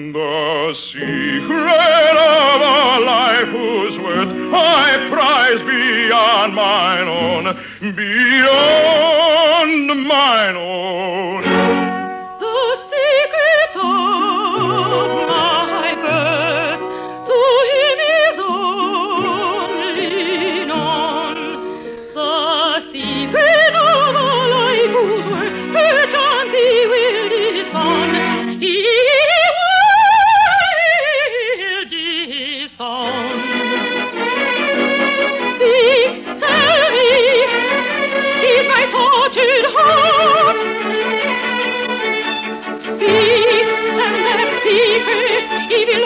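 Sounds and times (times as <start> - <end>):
operatic singing: 0.0 - 46.0
orchestra playing: 1.0 - 30.7, 33.0 - 46.0.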